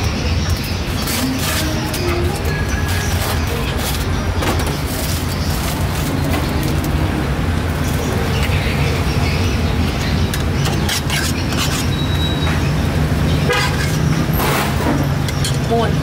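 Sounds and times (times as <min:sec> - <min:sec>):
traffic engine rumble: 0:00.0 - 0:16.0
car horn toot: 0:13.5 - 0:13.9.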